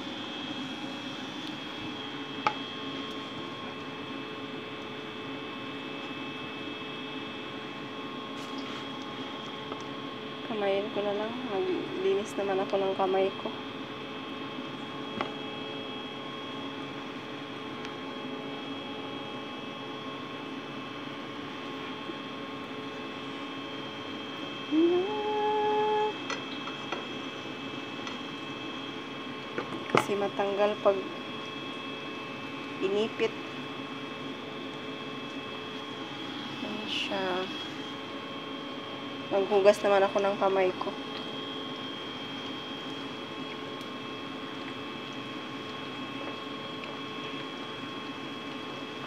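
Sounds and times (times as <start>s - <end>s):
kitchen appliance humming: 0.0s - 49.0s.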